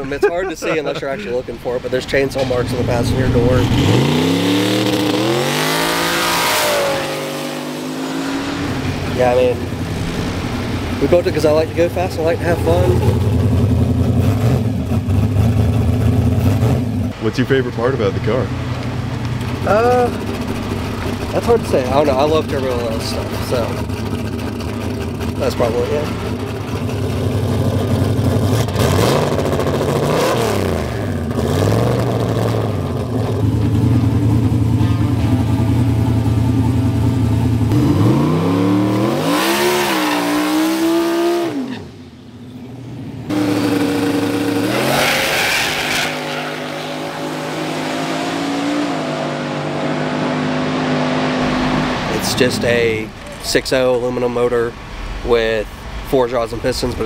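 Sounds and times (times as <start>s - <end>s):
car engine revving and idling: 0.0s - 57.0s.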